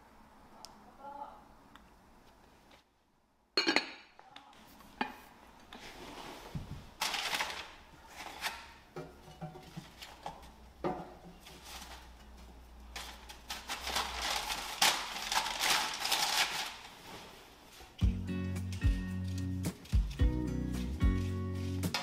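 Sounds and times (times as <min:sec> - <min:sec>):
paper bag rustling and crinkling: 0:05.9 - 0:08.6, 0:12.9 - 0:18.0.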